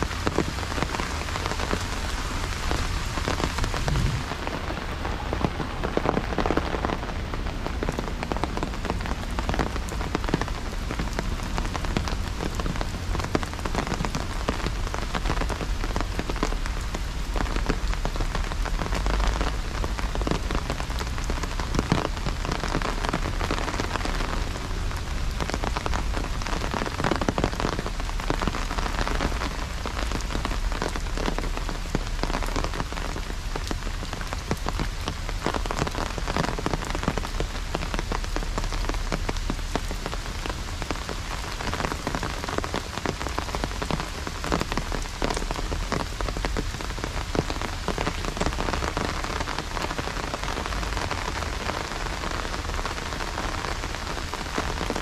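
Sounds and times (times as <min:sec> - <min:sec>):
rain on wet pavement: 0:00.0 - 0:55.0
rain pattering on an umbrella: 0:00.0 - 0:55.0
low rumble: 0:02.9 - 0:05.8.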